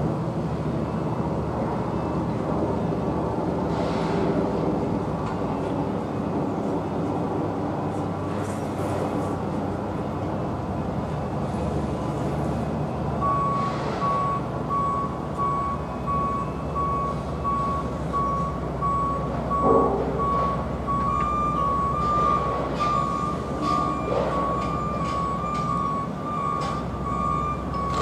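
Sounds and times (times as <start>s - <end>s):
low rumble of site machinery: 0.0s - 28.0s
reversing alarm beeping: 13.2s - 28.0s.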